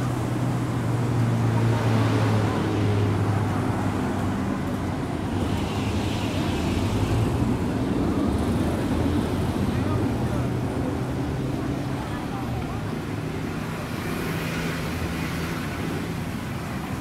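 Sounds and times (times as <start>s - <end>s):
street noise: 0.0s - 17.0s
traffic engine hum: 0.0s - 17.0s.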